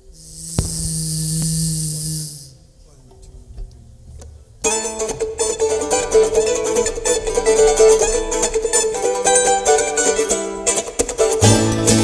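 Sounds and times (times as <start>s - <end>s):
mandolin: 3.2s - 12.0s
acoustic guitar: 4.0s - 12.0s
banjo: 4.6s - 12.0s
upright bass: 11.2s - 12.0s.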